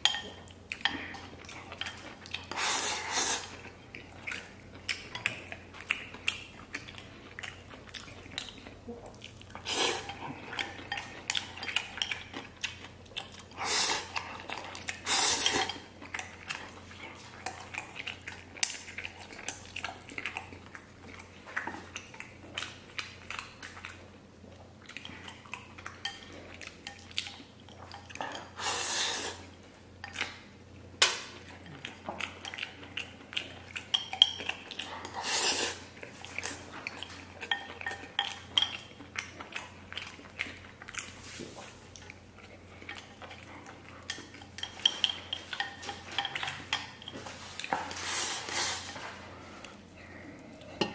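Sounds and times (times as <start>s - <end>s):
chewing: 0.0s - 50.9s
slurping noodles: 28.6s - 29.5s, 35.1s - 35.9s.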